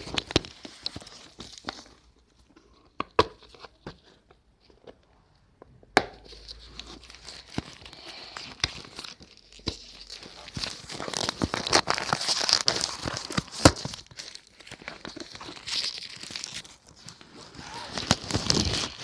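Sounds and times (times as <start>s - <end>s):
plastic wrapping crinkling: 0.0s - 2.1s, 6.3s - 19.0s.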